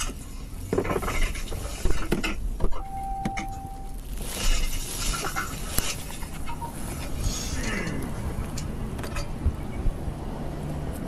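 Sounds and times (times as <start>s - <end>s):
electronic beep: 2.8s - 4.0s.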